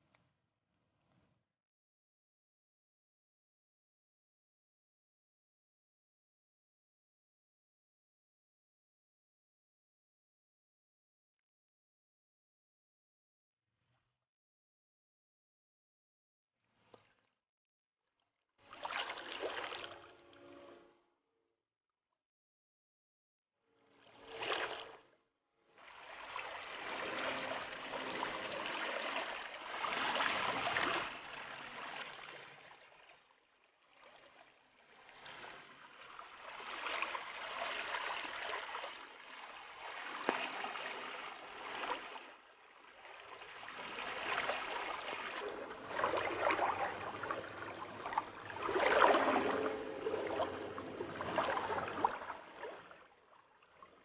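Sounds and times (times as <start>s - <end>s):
floodwater rushing: 44.2s - 52.8s.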